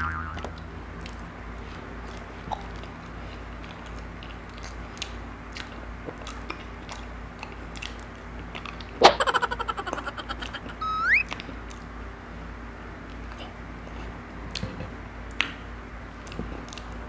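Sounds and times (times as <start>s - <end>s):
person chewing banana: 3.6s - 8.8s.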